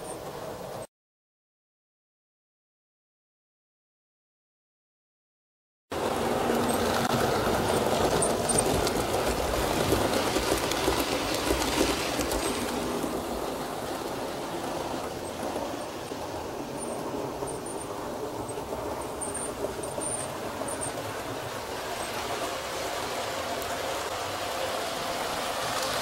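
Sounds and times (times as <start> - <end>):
model train rumbling on track: 0.0 - 0.9, 5.9 - 26.0.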